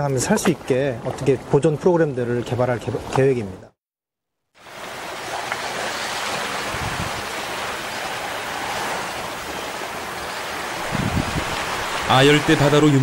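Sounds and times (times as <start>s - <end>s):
rushing water and wind noise: 4.6s - 13.0s.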